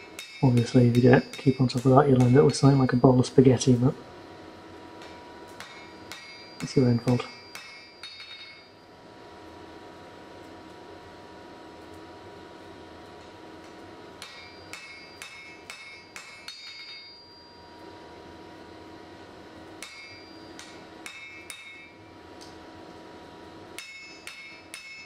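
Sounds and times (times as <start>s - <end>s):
hammer striking steel on anvil: 0.0s - 3.8s, 5.0s - 8.8s, 13.6s - 17.5s, 19.8s - 22.0s, 23.7s - 25.0s
faint steady hum: 0.0s - 25.0s.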